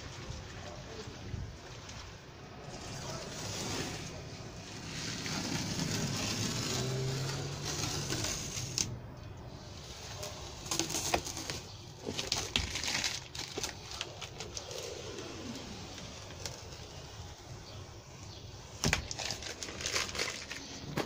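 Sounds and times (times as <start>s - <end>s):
plastic film crinkling while peeled: 0.0s - 8.9s, 9.6s - 21.0s
film tearing with sharp snaps: 4.9s - 9.0s.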